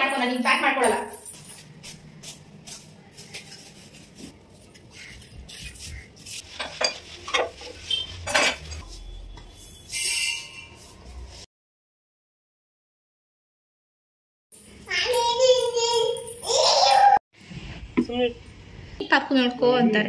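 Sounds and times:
kitchenware clinking: 6.4s - 9.0s.

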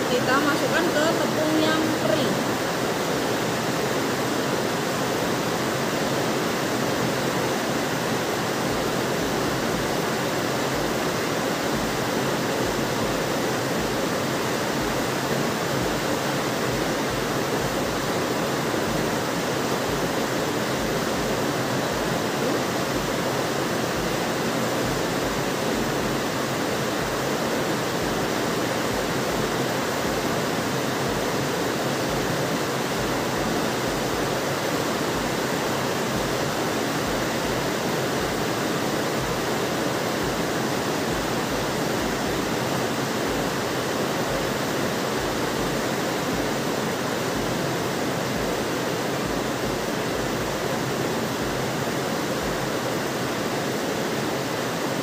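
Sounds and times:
steady rushing hiss: 0.0s - 55.0s.

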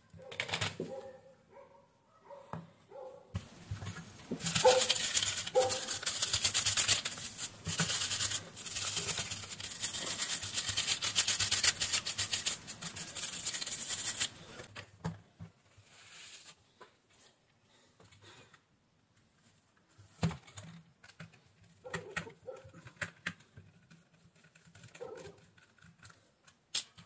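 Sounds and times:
small brush scrubbing plastic: 3.4s - 14.7s, 22.5s - 26.3s.

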